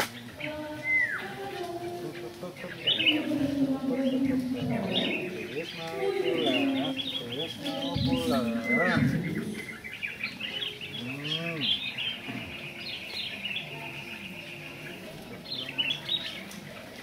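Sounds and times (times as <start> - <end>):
small birds chirping: 0.0 - 17.0
person's voice: 1.3 - 9.5.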